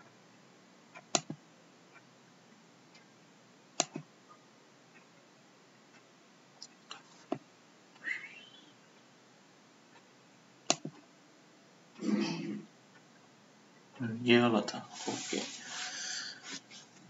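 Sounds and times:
computer mouse clicks: 1.0 - 2.0, 3.8 - 4.1, 10.7 - 11.0.

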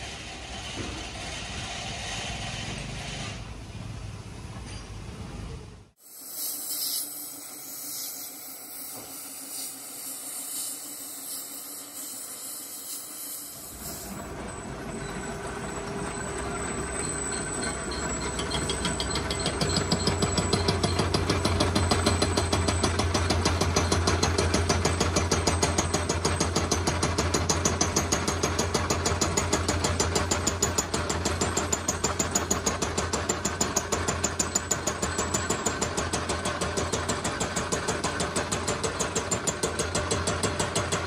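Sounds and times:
machine high hiss: 6.0 - 14.3.

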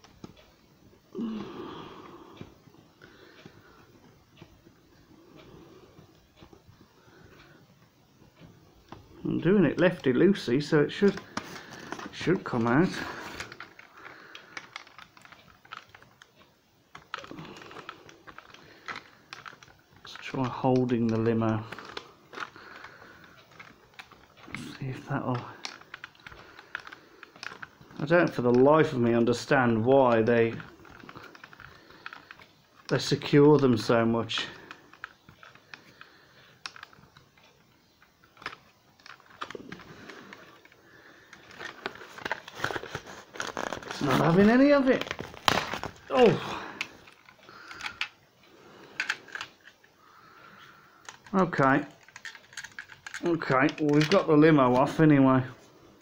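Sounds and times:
cardboard rustling: 9.6 - 16.2, 38.2 - 48.2
screwdriver clicking and scraping: 36.6 - 37.4, 38.0 - 44.3, 48.9 - 49.9, 51.0 - 54.3
cardboard being handled: 41.5 - 46.6.

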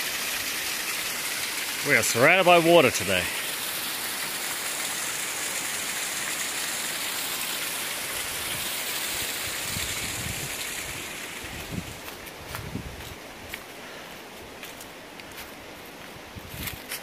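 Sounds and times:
rushing river: 0.0 - 17.0
footsteps on dirt trail: 11.5 - 17.0.

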